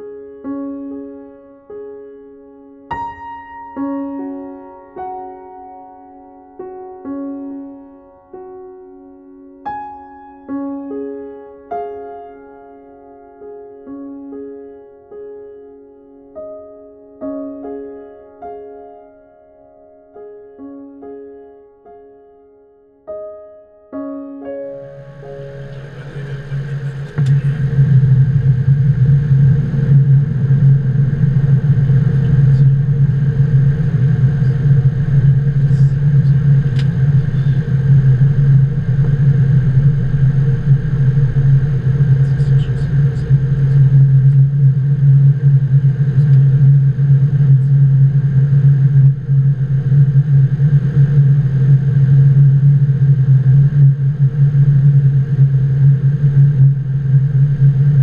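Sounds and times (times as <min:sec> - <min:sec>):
faint steady tones: 0:24.0 - 0:58.0
airflow and engine hum: 0:25.0 - 0:52.0.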